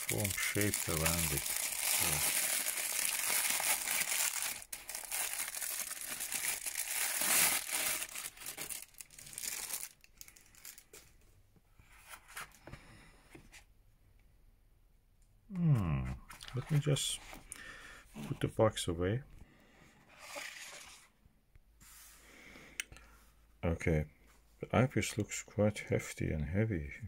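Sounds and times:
plastic wrapping crinkling: 0:00.0 - 0:11.2
soft handling noises: 0:16.0 - 0:18.6.

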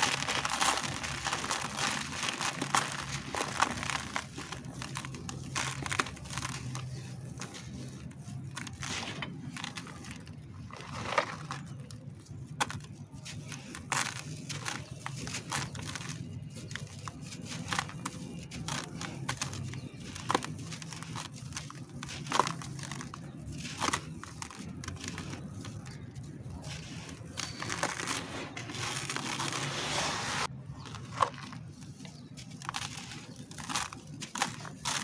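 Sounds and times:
concrete pieces snapping: 0:00.0 - 0:29.6, 0:31.1 - 0:35.0
concrete crumbling under fingers: 0:00.0 - 0:29.8, 0:30.4 - 0:35.0
grit crackling: 0:00.0 - 0:35.0.

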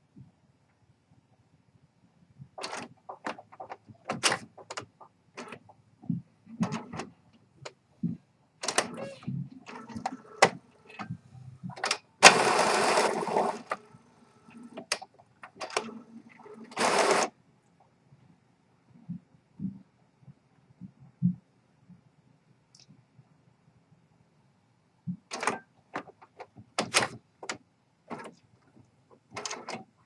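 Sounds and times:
printer carriage clicks and clatters: 0:02.6 - 0:05.6, 0:08.6 - 0:11.1, 0:11.7 - 0:16.0, 0:16.6 - 0:17.3, 0:25.3 - 0:28.4, 0:29.3 - 0:29.9
printer motor whirring: 0:11.7 - 0:15.0, 0:15.6 - 0:17.3.

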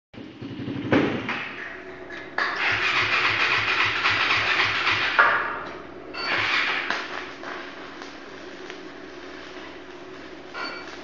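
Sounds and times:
welding arc crackling: 0:02.4 - 0:11.0.

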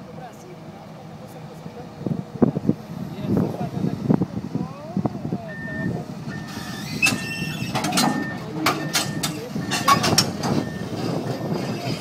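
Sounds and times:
excavator engine running: 0:00.0 - 0:12.0
metal clanks and knocks: 0:07.0 - 0:12.0.

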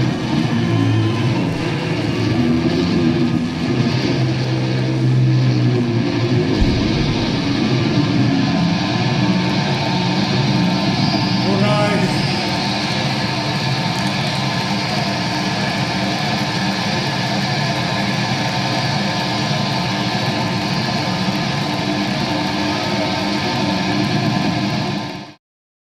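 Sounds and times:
electric guitar feedback: 0:00.0 - 0:14.8.

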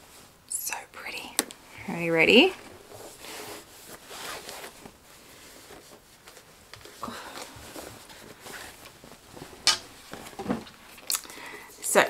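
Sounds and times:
cloth bag rustling: 0:02.4 - 0:11.1.

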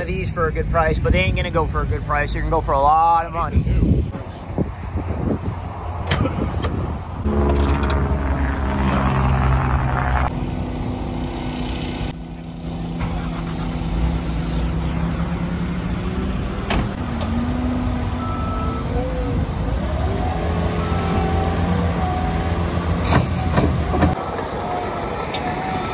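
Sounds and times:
diesel engine running: 0:06.0 - 0:25.9
hydraulic whine: 0:07.2 - 0:10.3.

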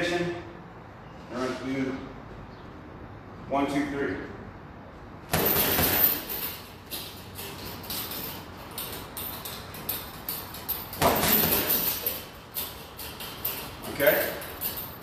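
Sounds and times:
gloves punching heavy bag: 0:05.3 - 0:14.3
chain clinking: 0:05.4 - 0:15.0.

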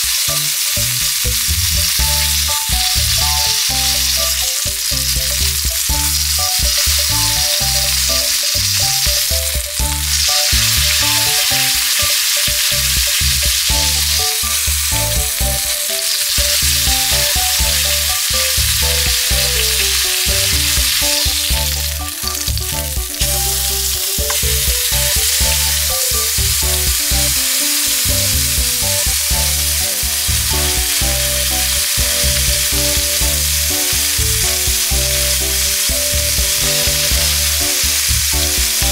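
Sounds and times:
steak sizzling in a frying pan: 0:00.0 - 0:38.9.

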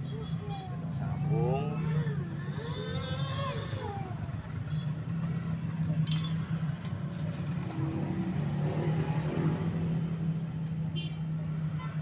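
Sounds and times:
low engine-like hum: 0:00.0 - 0:08.2
metallic clink of hand tools: 0:06.1 - 0:06.4.

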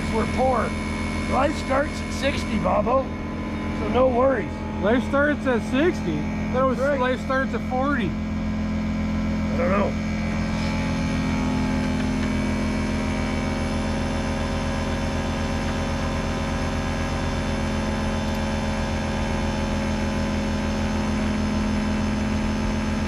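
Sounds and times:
air compressor humming and pulsing: 0:00.0 - 0:23.0.

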